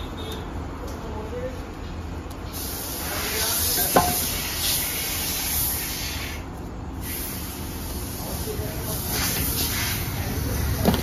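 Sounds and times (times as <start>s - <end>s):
steady hiss: 2.4s - 10.9s.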